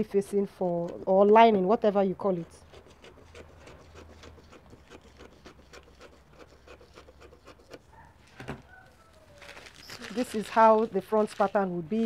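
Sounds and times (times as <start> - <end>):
scissors snipping paper: 2.3 - 7.9, 9.4 - 11.7
paper rustling: 7.6 - 12.0.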